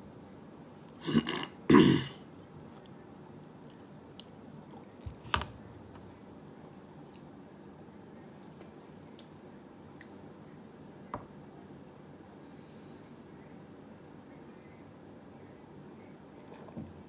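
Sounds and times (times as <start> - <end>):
man clearing his throat: 1.0 - 2.2.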